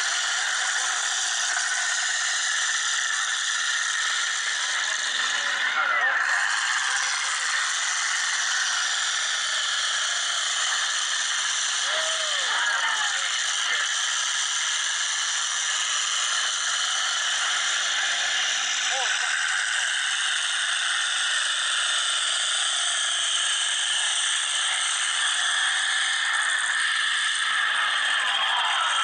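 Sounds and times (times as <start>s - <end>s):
truck engines rattling: 3.8s - 14.4s
grandstand crowd noise: 11.8s - 13.9s.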